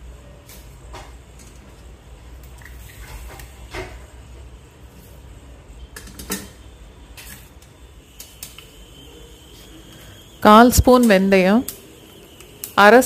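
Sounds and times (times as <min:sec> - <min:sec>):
mustard seeds popping in oil: 0:10.7 - 0:12.9.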